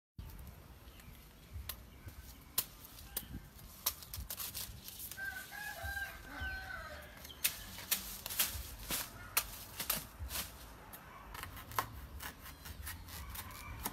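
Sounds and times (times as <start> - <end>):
rooster crowing: 5.2 - 7.3
knife chopping stalk: 11.4 - 13.9.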